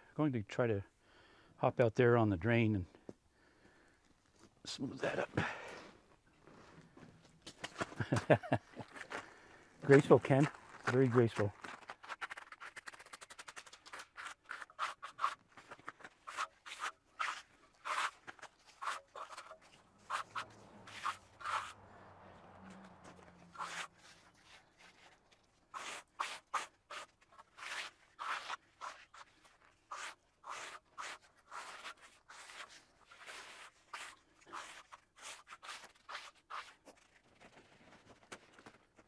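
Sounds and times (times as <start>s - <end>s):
trowel scraping wet concrete: 9.8s - 21.8s, 22.8s - 37.1s.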